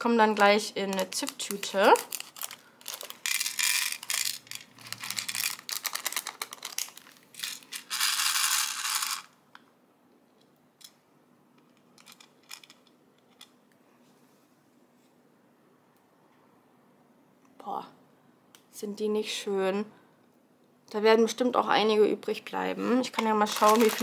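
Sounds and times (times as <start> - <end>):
plastic stones clicking: 2.2 - 9.3, 11.8 - 13.5.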